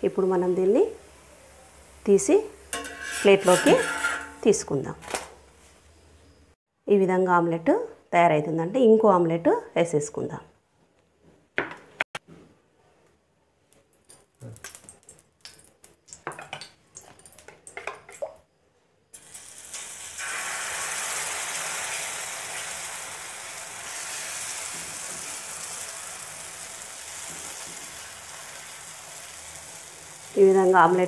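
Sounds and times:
steel bowl and spoon clinking: 2.7 - 4.5
batter sizzling in hot pan: 19.2 - 31.0.

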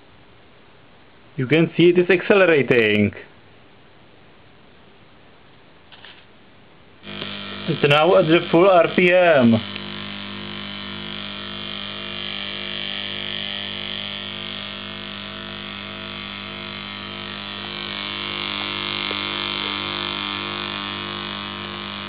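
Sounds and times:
electric motors humming and whirring: 7.0 - 22.0.

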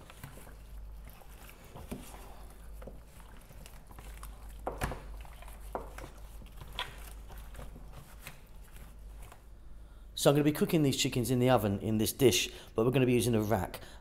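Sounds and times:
wet squishing of chicken skin: 0.0 - 9.6.

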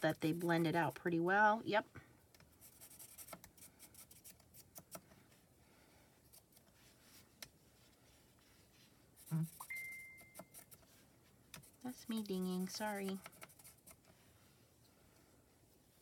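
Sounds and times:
marker scratching on paper: 0.0 - 1.1, 2.5 - 5.0, 9.2 - 11.0, 11.6 - 14.2.

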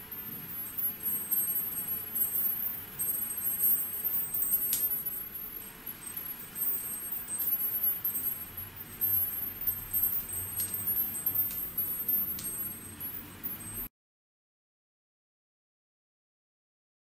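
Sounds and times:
small metal chime ringing: 0.0 - 13.9.

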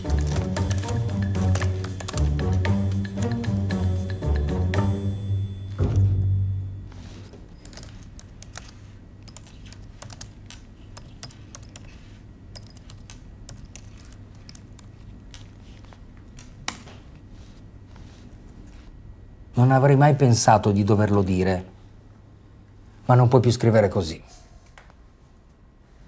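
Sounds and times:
laptop keyboard typing: 0.0 - 5.0, 7.0 - 18.2.

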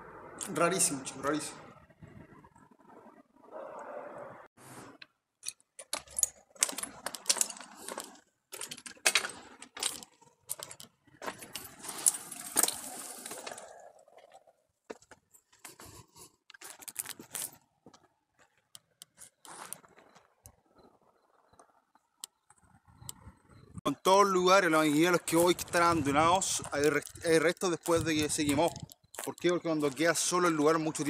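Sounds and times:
footsteps crunching on gravel: 6.5 - 20.4, 24.8 - 31.0.

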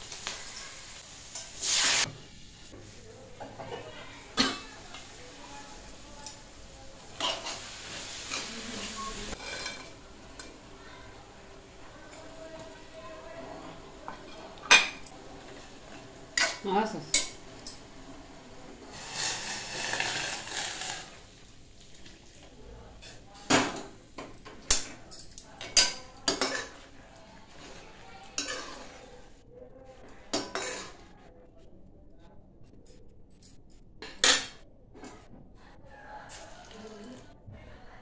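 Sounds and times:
soft hissing: 0.0 - 3.2, 4.9 - 9.4, 18.8 - 21.5
metal spatula scraping metal pan: 7.2 - 10.0, 28.4 - 29.0.

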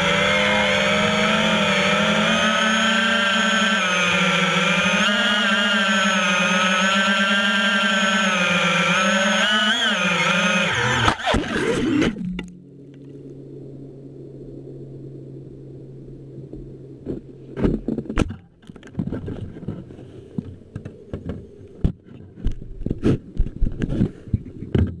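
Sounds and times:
low steady hum: 0.0 - 25.0
clicks knocks and scraping rattles: 17.0 - 25.0.

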